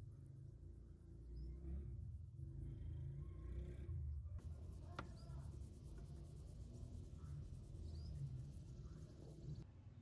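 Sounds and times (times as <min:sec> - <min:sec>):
stiff brush scrubbing metal: 0:04.4 - 0:09.6.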